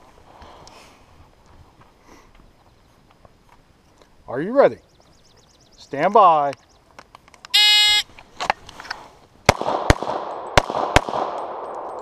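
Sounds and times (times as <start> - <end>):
shot timer beep: 7.6 - 8.0
pistol shots: 9.5 - 12.0.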